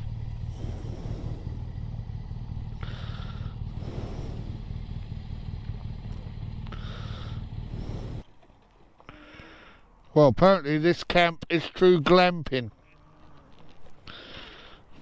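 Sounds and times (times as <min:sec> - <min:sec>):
motorcycle engine running: 0:00.0 - 0:08.2.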